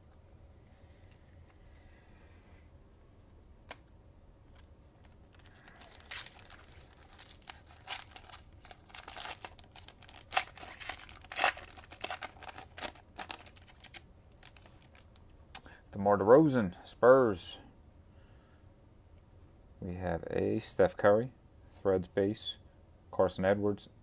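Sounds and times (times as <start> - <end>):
foil pack crinkling and tearing: 5.0 - 15.2.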